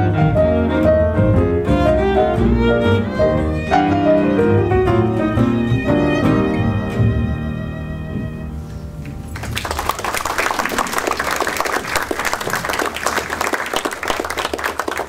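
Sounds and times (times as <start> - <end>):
audience applause: 9.2 - 15.0.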